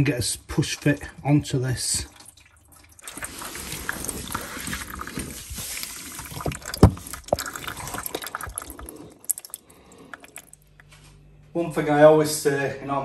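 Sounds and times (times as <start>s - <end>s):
water dripping into plastic tray: 6.3s - 10.9s.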